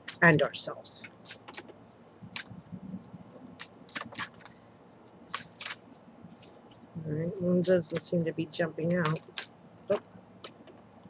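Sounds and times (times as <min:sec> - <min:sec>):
cards being shuffled: 0:00.0 - 0:00.4, 0:01.0 - 0:06.0, 0:07.6 - 0:08.2, 0:08.8 - 0:10.7.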